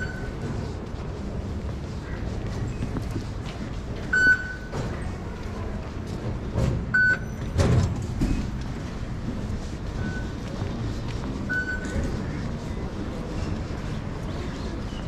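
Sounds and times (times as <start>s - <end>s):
gate flap doors swinging open: 6.5s - 8.5s.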